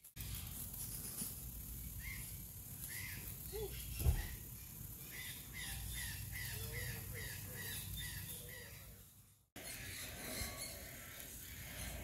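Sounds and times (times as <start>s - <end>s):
bird chirping: 1.9s - 12.0s
dull thump: 4.0s - 4.4s.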